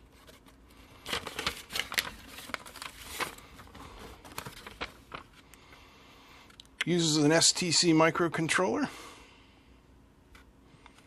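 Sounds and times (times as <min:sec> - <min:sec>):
paper rustling and crinkling: 0:00.0 - 0:05.4.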